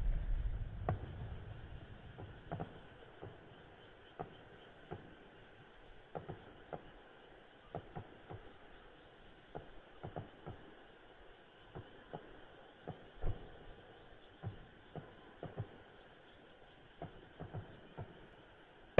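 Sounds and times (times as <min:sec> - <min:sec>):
firework burst rumble: 0:00.0 - 0:03.5
fireworks popping: 0:00.0 - 0:03.6.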